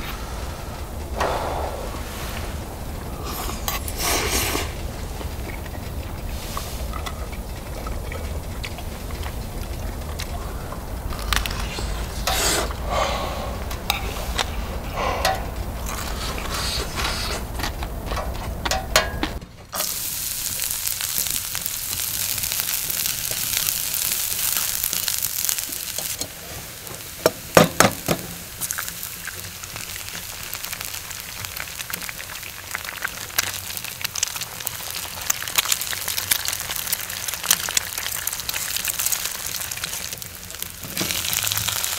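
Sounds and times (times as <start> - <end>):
low hum: 0.0 - 26.2
food frying sizzle: 0.0 - 41.9.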